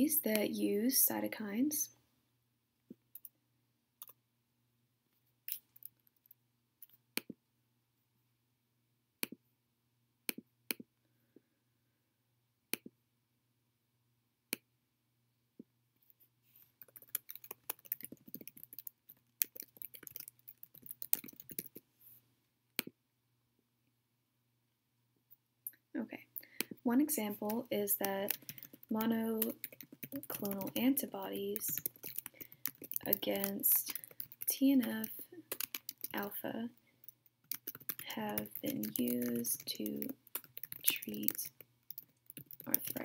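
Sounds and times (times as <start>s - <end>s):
faint steady hum: 0.0s - 43.0s
rapid keyboard typing: 16.8s - 21.8s, 26.6s - 43.0s.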